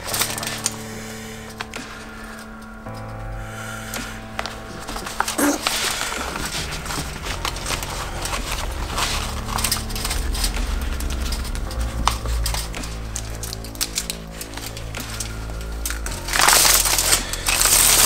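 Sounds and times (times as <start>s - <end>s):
tin foil crinkling: 0.0s - 2.7s, 3.8s - 18.0s
background music: 0.0s - 18.0s
latex sheeting rustling: 3.6s - 18.0s.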